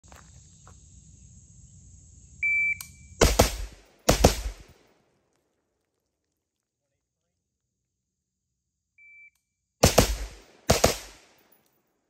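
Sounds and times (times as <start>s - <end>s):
shot timer beep: 2.4s - 3.0s
rifle shots: 3.2s - 4.9s, 9.8s - 11.5s.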